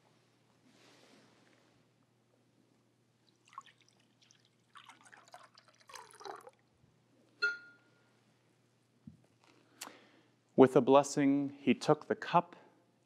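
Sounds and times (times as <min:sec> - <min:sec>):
liquid trickling and splashing: 0:03.2 - 0:06.7
ringing clink: 0:07.4 - 0:07.9.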